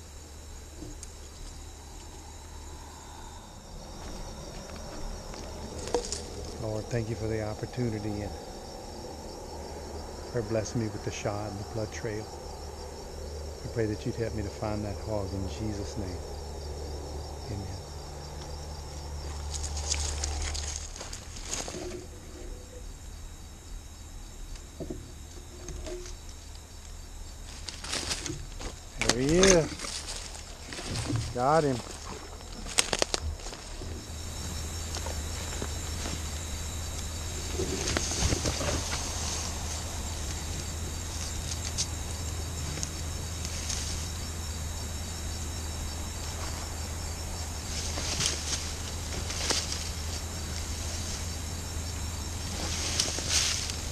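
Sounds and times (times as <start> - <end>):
crickets chirring: 0.0 - 53.9
steady low hum: 0.0 - 53.9
rustles in brush: 52.2 - 53.9.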